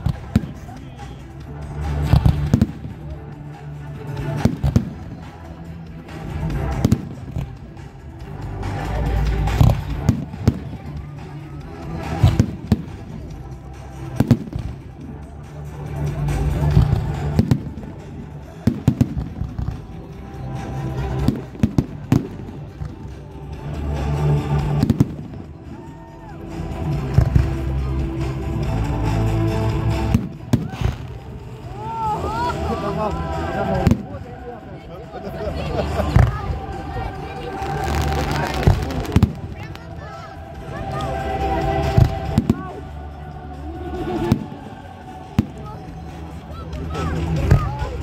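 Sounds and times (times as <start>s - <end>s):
music: 0.0s - 48.0s
fireworks bangs and cracks: 1.8s - 3.2s, 4.1s - 7.6s, 8.7s - 11.1s, 12.0s - 13.4s, 16.6s - 20.1s, 24.3s - 25.5s, 33.6s - 34.2s, 37.4s - 40.2s
fireworks bursting: 24.6s - 25.5s, 33.7s - 34.2s, 36.1s - 42.8s.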